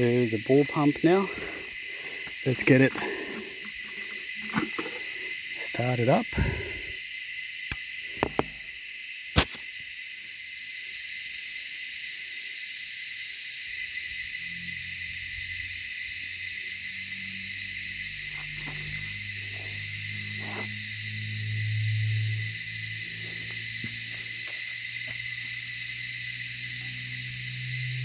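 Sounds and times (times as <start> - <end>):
steady high hiss: 0.0 - 28.0
pump humming: 1.3 - 6.9.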